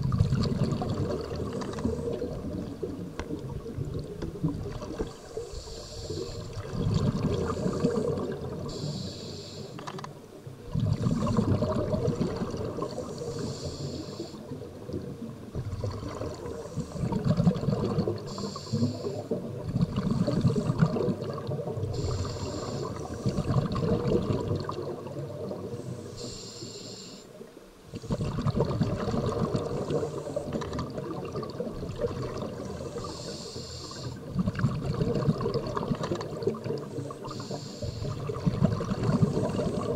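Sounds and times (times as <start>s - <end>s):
exhalation bubbling rush: 0.0s - 9.0s, 10.6s - 25.9s, 27.9s - 33.2s, 34.1s - 39.9s
regulator inhalation hiss: 5.1s - 6.6s, 7.4s - 9.8s, 12.9s - 14.5s, 16.5s - 17.2s, 18.3s - 19.4s, 22.0s - 23.6s, 25.7s - 27.4s, 29.7s - 30.6s, 32.8s - 34.3s, 36.8s - 38.3s.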